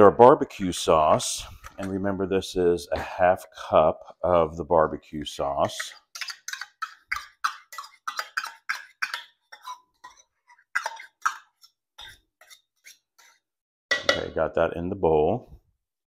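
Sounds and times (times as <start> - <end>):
spoon scraping metal measuring cup: 5.2 - 13.5.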